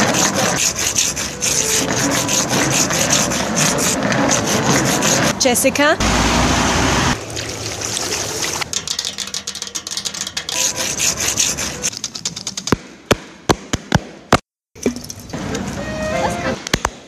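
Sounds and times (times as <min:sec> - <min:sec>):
hand scraping gravel: 0:00.0 - 0:05.3.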